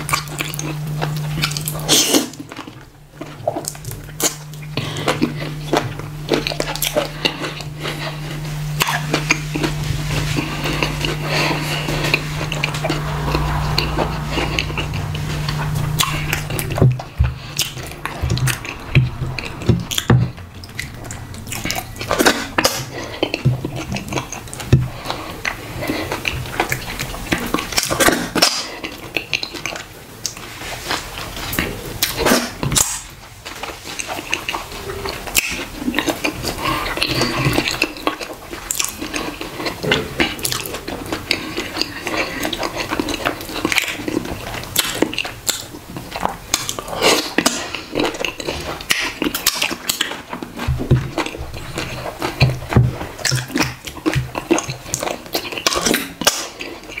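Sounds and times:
chewing and mouth sounds: 0.0s - 57.0s.

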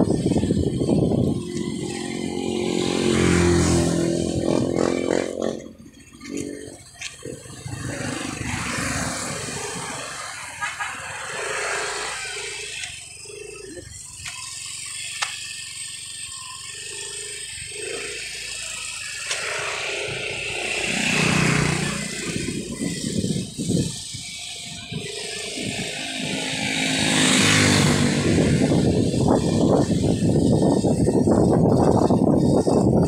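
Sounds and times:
wind on microphone: 0.0s - 11.4s, 19.4s - 33.0s
motorcycle engine running: 0.0s - 33.0s.

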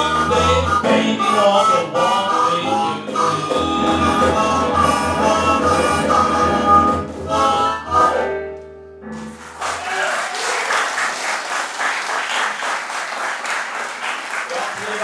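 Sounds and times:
audience applause: 9.2s - 15.0s.

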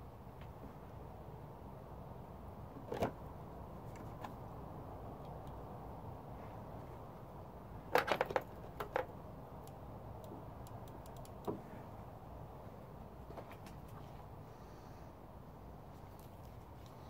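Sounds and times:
light sharp clicks: 9.6s - 11.6s.

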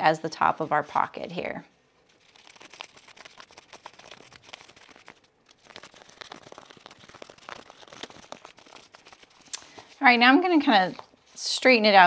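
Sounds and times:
fabric crinkling and rustling: 2.0s - 12.0s.

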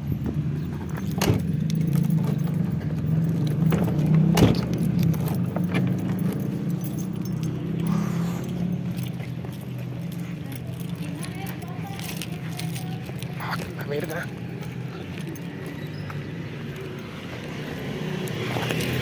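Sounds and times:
keys jangling: 0.4s - 17.6s
car door shutting: 3.7s - 4.8s.

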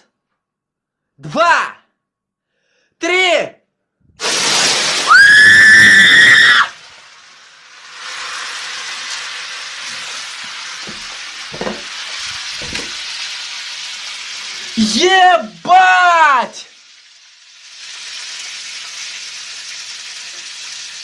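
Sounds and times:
burning oil sizzling: 4.2s - 21.0s
high-pitched scream: 4.9s - 6.8s.

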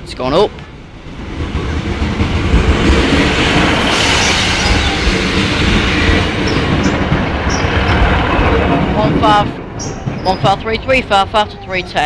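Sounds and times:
train wheels rumbling on rails: 0.0s - 12.0s
train wheels squealing: 3.7s - 8.7s, 9.8s - 10.6s.

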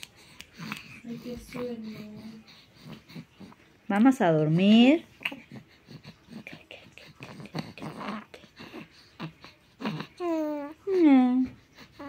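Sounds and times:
kissing smacks and puffs: 0.0s - 1.0s.

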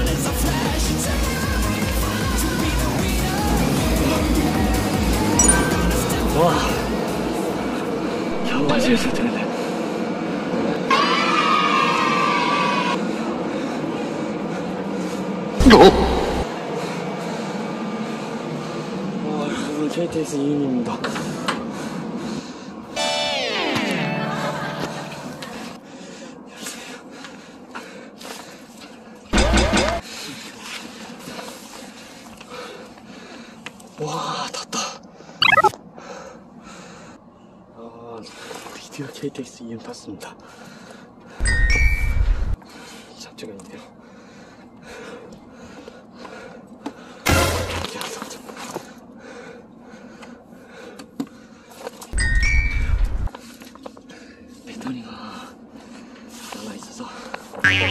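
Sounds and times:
train interior ambience: 3.9s - 23.1s.

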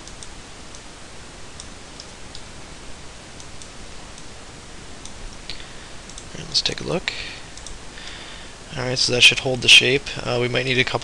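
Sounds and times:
computer mouse clicks: 0.0s - 0.9s, 5.0s - 6.3s, 7.6s - 7.8s
background hiss: 0.0s - 11.0s.

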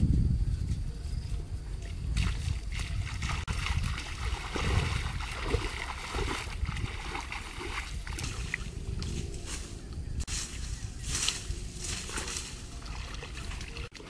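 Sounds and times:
low rumble: 0.0s - 13.9s
bare feet splashing in water: 2.2s - 8.8s, 11.9s - 14.0s.

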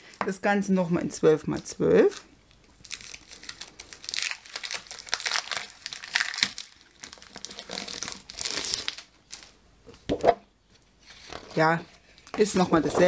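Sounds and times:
paper rustling and crinkling: 2.8s - 9.5s, 11.0s - 13.0s.

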